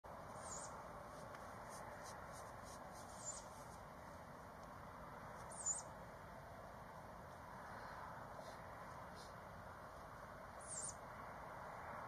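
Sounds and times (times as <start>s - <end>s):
young owl squeaky calls: 0.3s - 0.8s, 3.1s - 3.5s, 5.5s - 5.9s, 10.6s - 11.0s.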